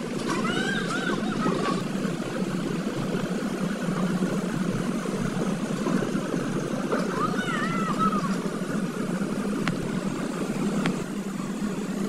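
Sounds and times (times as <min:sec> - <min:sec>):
asphalt sprayer spraying: 0:00.0 - 0:12.0
engine running: 0:00.0 - 0:12.0.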